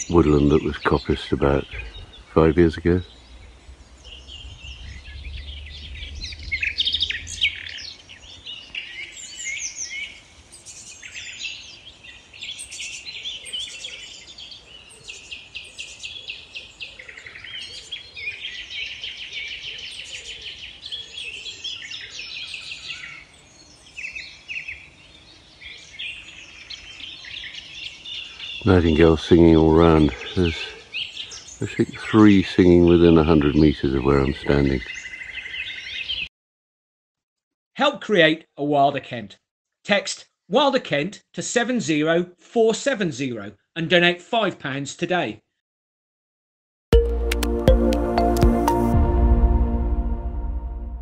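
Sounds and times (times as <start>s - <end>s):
nightingales singing: 0.0s - 36.3s.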